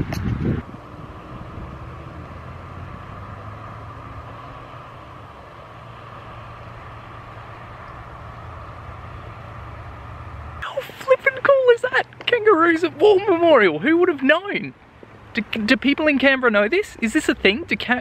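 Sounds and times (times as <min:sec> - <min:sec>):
car traffic passing: 0:00.0 - 0:18.0.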